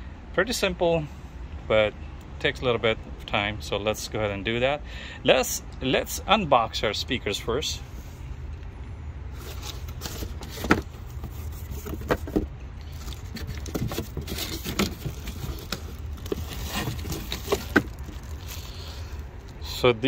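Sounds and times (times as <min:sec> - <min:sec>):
cardboard and plastic rustling: 0:09.3 - 0:19.5.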